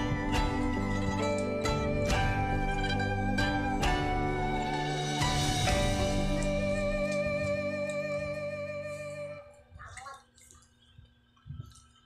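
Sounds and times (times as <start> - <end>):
instrumental music with held notes: 0.0 - 9.6.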